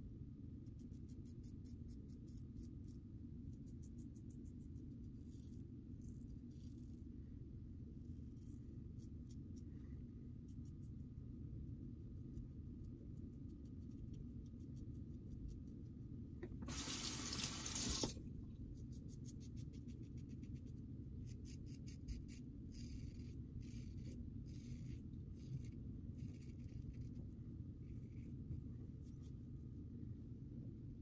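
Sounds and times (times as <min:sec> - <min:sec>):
tap running water: 0:16.4 - 0:18.2.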